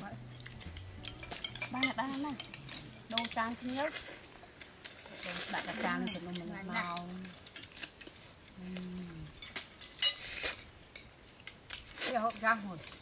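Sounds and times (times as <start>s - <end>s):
spoons scraping plates: 0.3s - 8.4s, 9.3s - 13.0s
spoons clinking on plates: 0.4s - 8.1s, 9.4s - 11.9s.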